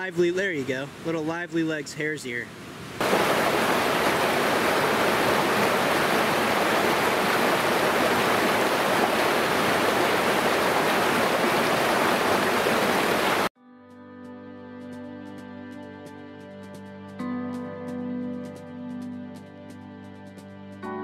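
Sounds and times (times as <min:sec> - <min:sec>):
creek water rushing: 0:00.0 - 0:13.5
quiet plucked instrumental music: 0:13.6 - 0:21.0.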